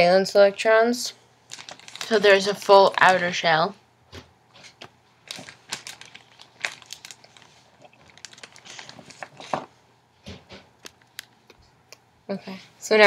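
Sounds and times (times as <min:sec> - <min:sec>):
crinkling foil: 0:01.5 - 0:03.6, 0:04.6 - 0:09.7.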